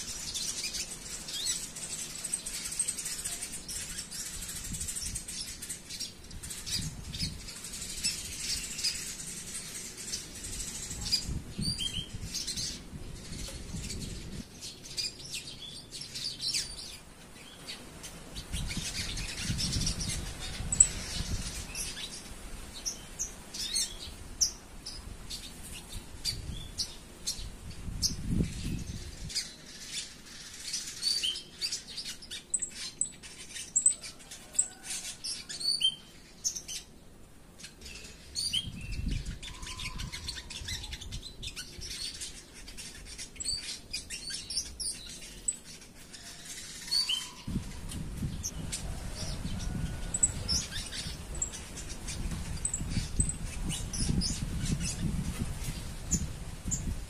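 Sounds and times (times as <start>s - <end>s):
sparrows chirping: 0.0s - 57.0s
sunbird twittering: 37.6s - 48.6s.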